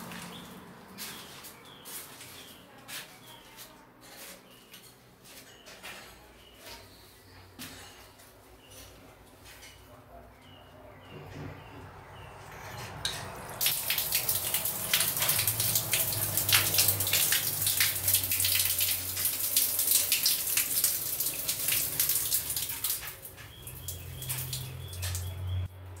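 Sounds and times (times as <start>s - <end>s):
water running from a tap: 13.4s - 25.7s.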